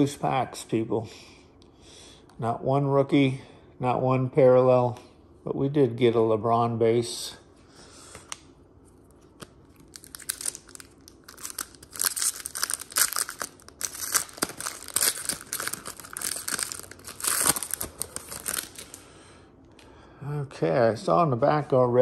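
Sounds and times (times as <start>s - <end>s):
foil wrapper tearing and crinkling: 9.8s - 19.0s.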